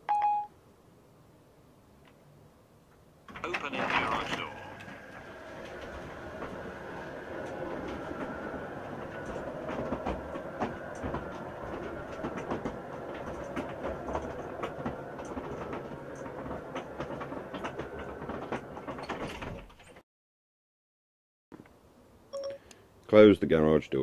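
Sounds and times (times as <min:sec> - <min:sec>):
garage door motor rumbling: 0:03.2 - 0:20.0.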